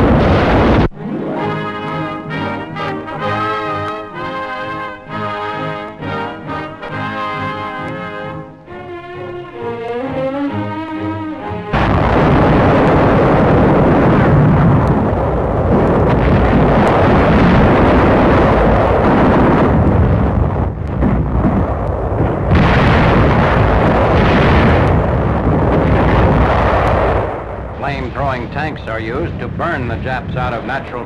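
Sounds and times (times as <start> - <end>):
shell bursts and explosions: 0.0 - 8.6, 11.7 - 31.0
brass music: 0.8 - 12.3.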